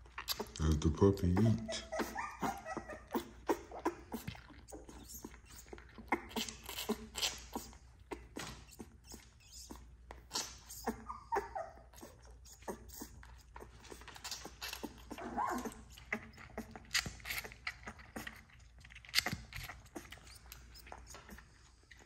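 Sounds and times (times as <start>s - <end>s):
puppy suckling with wet clicks: 0.0s - 22.0s
puppy cries: 1.3s - 18.4s.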